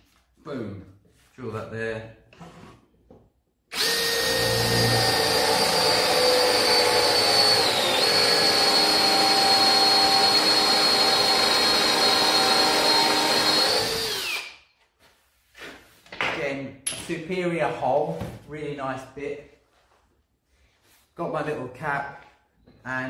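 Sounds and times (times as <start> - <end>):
cordless drill boring wood: 3.7 - 14.6.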